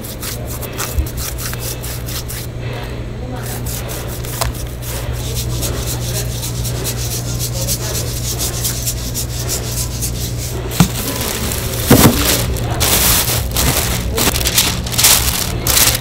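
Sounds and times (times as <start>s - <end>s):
plastic bag rustling: 10.3s - 16.0s.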